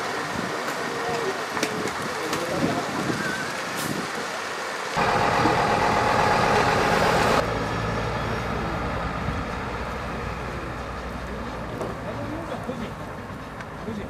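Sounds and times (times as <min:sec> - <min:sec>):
diesel truck engine driving away: 0:03.6 - 0:14.0.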